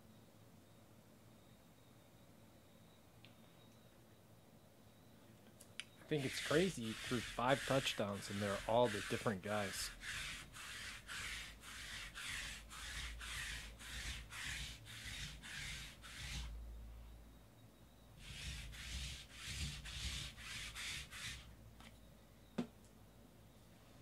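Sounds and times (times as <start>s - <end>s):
lint roller rasping: 6.1s - 16.6s, 18.2s - 21.5s.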